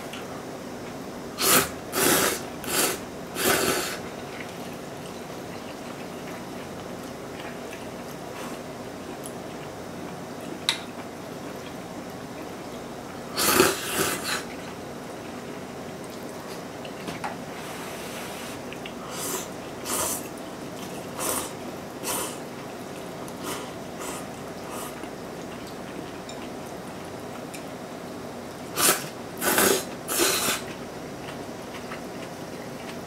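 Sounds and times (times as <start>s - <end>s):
noodles being slurped: 1.4s - 4.0s, 13.4s - 14.6s, 28.8s - 30.8s.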